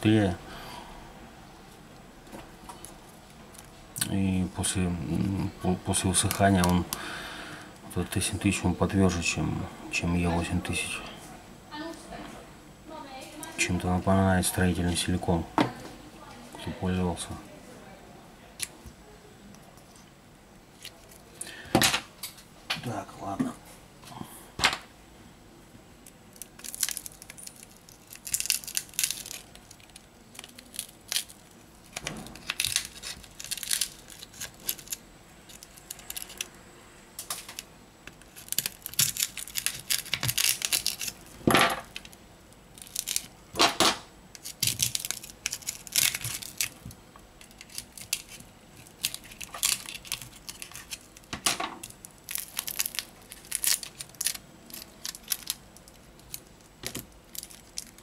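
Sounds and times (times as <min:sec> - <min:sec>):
phone display cracking and scraping: 0:44.4 - 0:46.8, 0:47.4 - 0:58.0.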